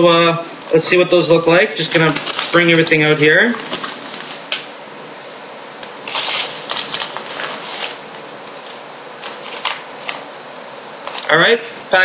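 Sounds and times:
paper rustling and crinkling: 0:01.8 - 0:04.5, 0:06.0 - 0:10.2, 0:11.0 - 0:11.4.

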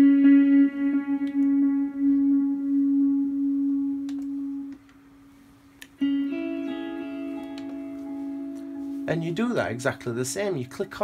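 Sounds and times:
clean electric guitar note: 0:00.0 - 0:04.8.

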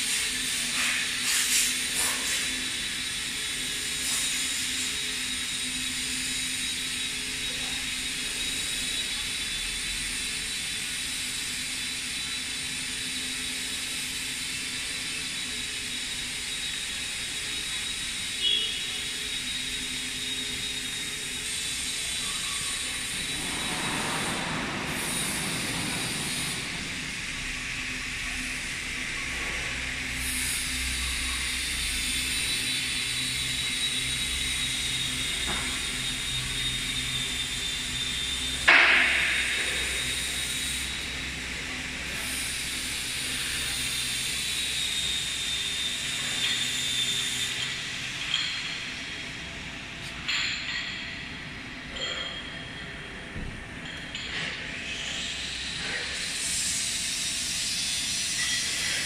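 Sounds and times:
factory machine hum and hiss: 0:00.0 - 0:59.0
loud rushing noise: 0:23.2 - 0:27.7.

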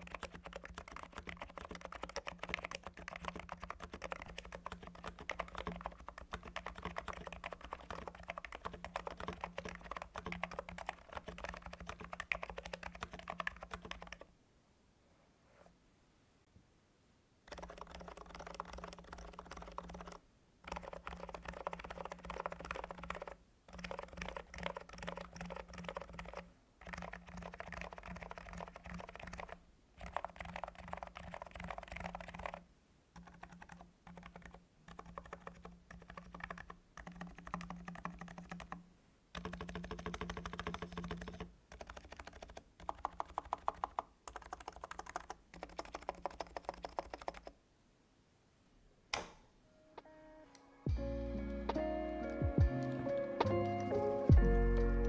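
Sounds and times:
rapid keyboard typing: 0:00.0 - 0:14.3, 0:17.5 - 0:32.6, 0:33.2 - 0:47.6.

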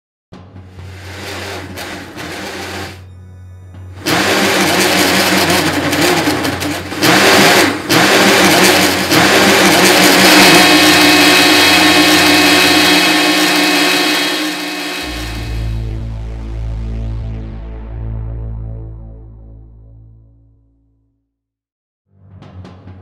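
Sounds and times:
power saw whining: 0:00.7 - 0:03.1, 0:04.0 - 0:15.8.

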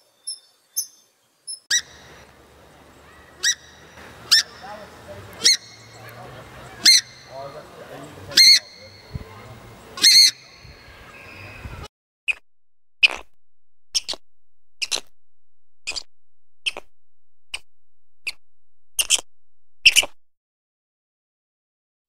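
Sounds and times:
animal chirping: 0:05.4 - 0:07.4, 0:10.0 - 0:11.6, 0:13.0 - 0:14.2, 0:14.8 - 0:15.1, 0:15.8 - 0:16.9, 0:19.0 - 0:20.2.

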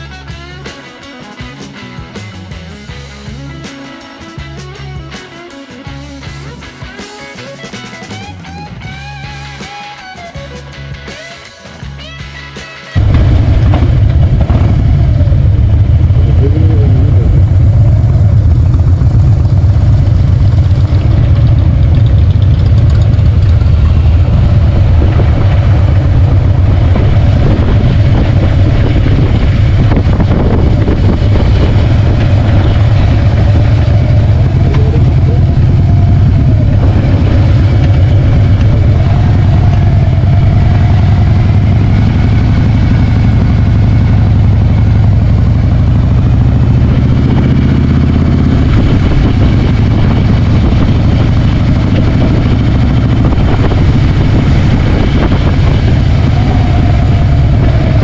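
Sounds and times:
motorcycle engine rumbling: 0:11.9 - 0:58.0.

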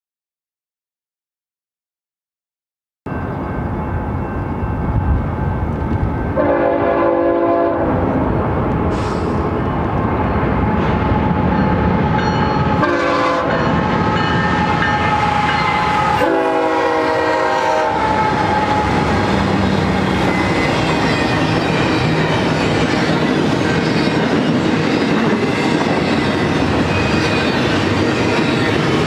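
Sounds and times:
train horn blasts: 0:06.3 - 0:08.3, 0:12.6 - 0:21.2.

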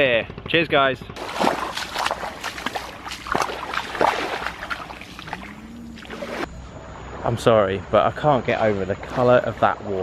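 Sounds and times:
water lapping at shoreline: 0:01.2 - 0:07.2.

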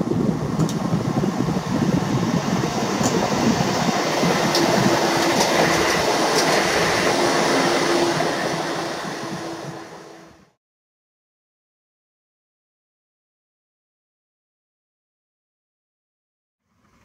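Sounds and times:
train wheels rumbling on rails: 0:00.0 - 0:10.6.

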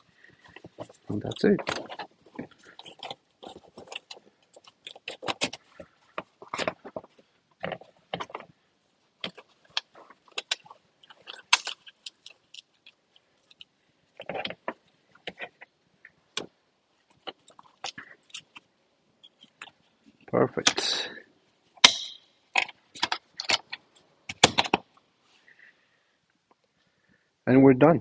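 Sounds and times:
plastic connectors clicking: 0:09.2 - 0:15.6.

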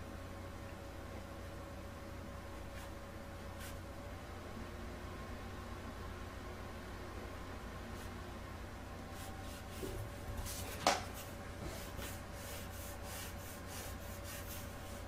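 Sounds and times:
pen scratching on paper: 0:12.0 - 0:15.0.

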